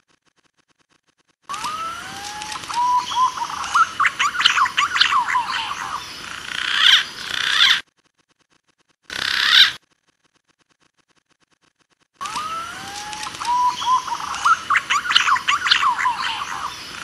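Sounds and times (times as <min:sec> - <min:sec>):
pigeon whistled calls: 0:01.5 - 0:06.1, 0:12.2 - 0:17.0.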